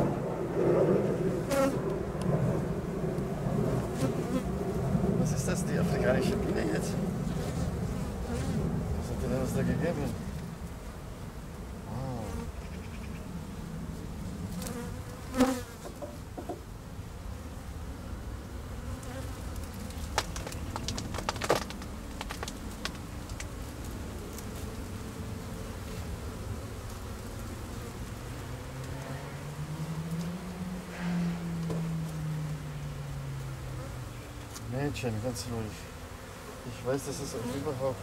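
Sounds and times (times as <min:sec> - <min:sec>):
bees buzzing: 0:00.0 - 0:38.0
hive tool knocking and cracking: 0:19.6 - 0:23.6.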